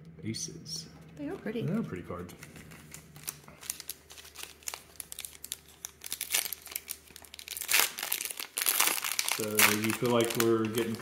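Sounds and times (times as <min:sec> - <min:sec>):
foil wrapper crinkling: 0:02.4 - 0:11.0.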